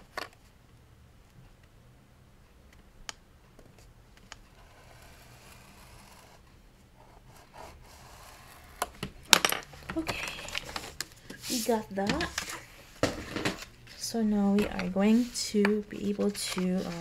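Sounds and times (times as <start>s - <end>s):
paper rubbing and scraping: 10.4s - 17.0s.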